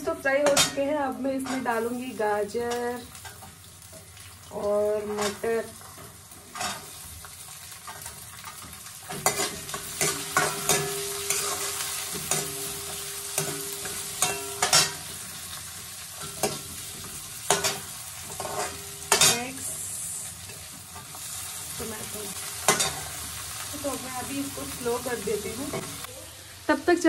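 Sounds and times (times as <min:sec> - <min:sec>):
vegetables sizzling in oil: 0:00.0 - 0:27.0
steel spoon clinking against pan: 0:09.2 - 0:15.0.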